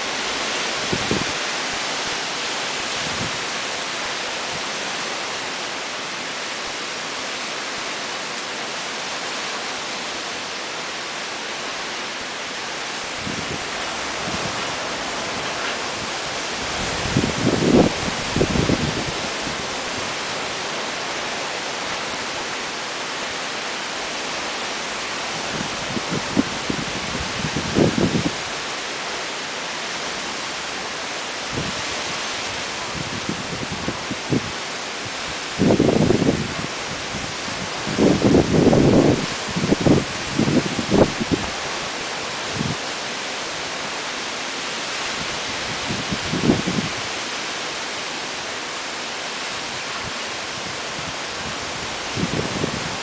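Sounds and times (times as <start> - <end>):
low thumps from wind gusts: 0.0 - 3.8, 12.8 - 22.5, 25.0 - 28.8, 31.4 - 42.9, 45.0 - 47.2, 49.7 - 53.0
heavy rain pouring: 0.0 - 53.0
strong wind: 0.0 - 53.0.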